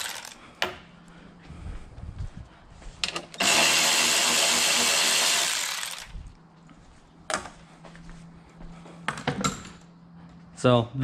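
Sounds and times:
cordless power tool running: 0.0 - 0.4, 3.4 - 6.4.

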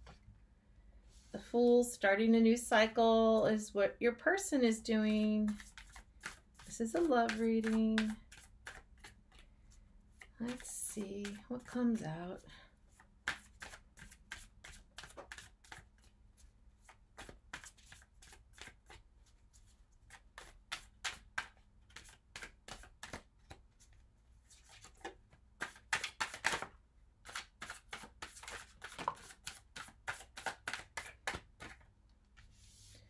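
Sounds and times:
cards being shuffled: 5.4 - 9.5, 10.1 - 11.7, 13.2 - 16.1, 16.9 - 32.6.

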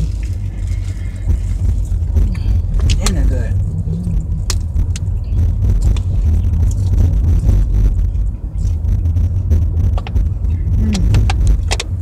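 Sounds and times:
car cabin road rumble: 0.0 - 12.0.

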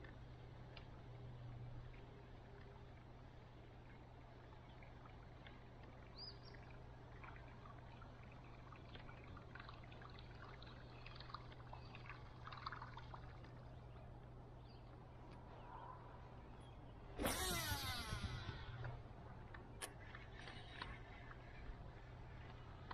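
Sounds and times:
low steady hum: 0.0 - 22.9
water trickling against canoe hull: 1.8 - 15.2.

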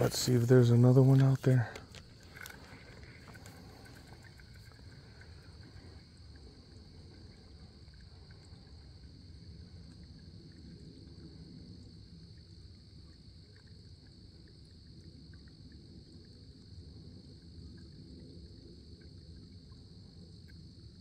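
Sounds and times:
faint ticks: 0.2 - 8.9, 20.4 - 20.7.

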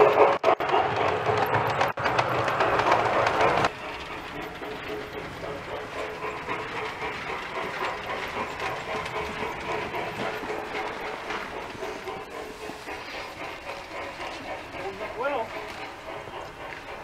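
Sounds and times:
model train wheels rattling on rails: 0.0 - 17.0.

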